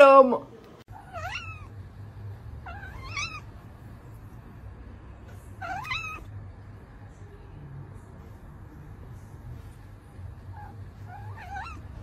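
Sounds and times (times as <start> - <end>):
cat meowing: 0.9 - 1.7, 2.6 - 3.5, 5.6 - 6.3, 10.5 - 12.0.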